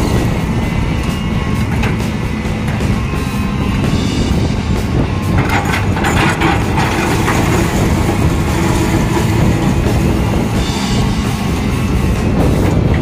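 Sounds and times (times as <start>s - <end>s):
excavator diesel engine running: 0.0s - 13.0s
rocks rattling and scraping: 5.2s - 10.6s.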